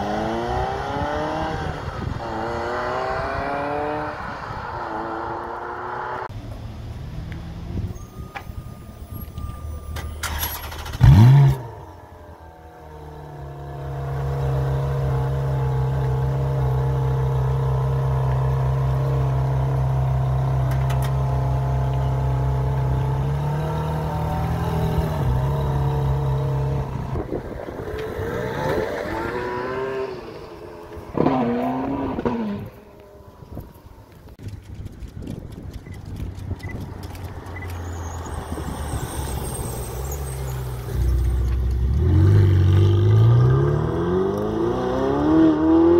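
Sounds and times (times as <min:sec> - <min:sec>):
car engine idling and revving: 0:00.0 - 0:45.9
car accelerating past: 0:23.2 - 0:33.1, 0:37.4 - 0:45.9.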